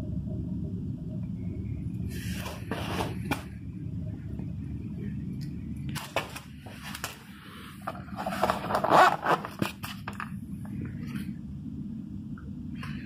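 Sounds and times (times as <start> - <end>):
zipper being pulled open: 8.2 - 9.8.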